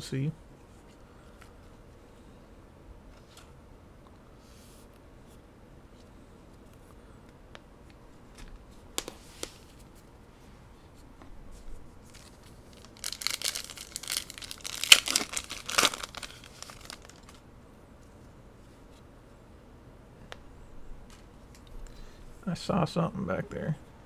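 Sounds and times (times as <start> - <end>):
foil pack crinkling and tearing: 12.1 - 17.4.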